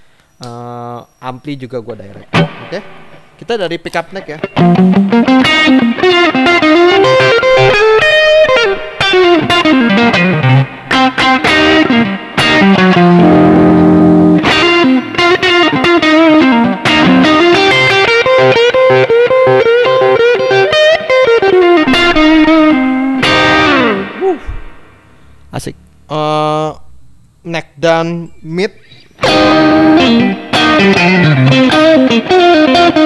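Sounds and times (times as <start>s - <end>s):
overdriven electric guitar lead: 2.3s - 3.2s, 4.2s - 24.9s, 28.8s - 33.0s
electric guitar chord ringing: 4.3s - 25.0s, 28.9s - 33.0s.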